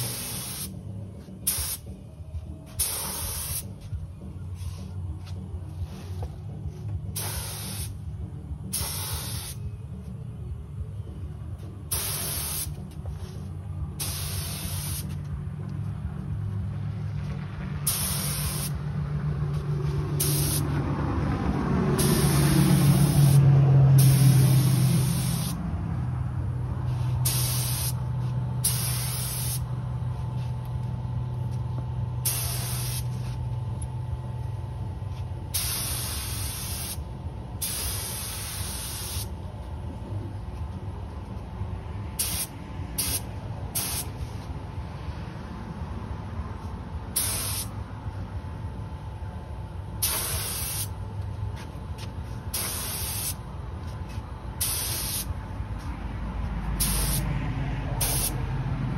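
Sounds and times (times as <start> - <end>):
spray gun hissing bursts: 0.0 - 0.8, 1.4 - 1.9, 2.8 - 3.7, 7.2 - 8.0, 8.7 - 9.6, 11.9 - 12.8, 14.0 - 15.2, 17.8 - 18.8, 20.2 - 20.6, 22.0 - 23.4, 24.0 - 25.6, 26.9 - 29.7, 32.2 - 33.2, 35.5 - 37.0, 37.6 - 39.3, 42.2 - 44.2, 47.2 - 47.7, 50.0 - 51.0, 52.5 - 53.4, 54.6 - 55.3, 56.8 - 57.2, 58.0 - 58.4
low drone: 0.0 - 35.5.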